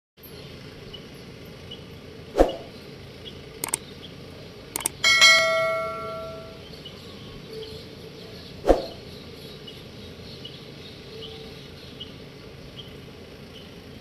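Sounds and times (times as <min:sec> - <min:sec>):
short whoosh: 0:02.4 - 0:02.7, 0:08.6 - 0:09.0
mouse clicks: 0:04.8 - 0:05.0
notification bell ding: 0:04.8 - 0:06.6.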